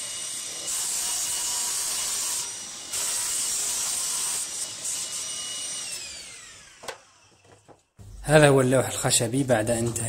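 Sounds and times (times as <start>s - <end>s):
saw cutting plywood: 0.0s - 7.7s
table saw whining: 0.0s - 8.4s.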